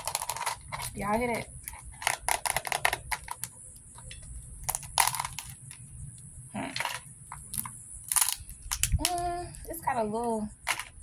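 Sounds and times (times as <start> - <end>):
crab shell cracking: 4.6 - 5.8, 6.9 - 9.2.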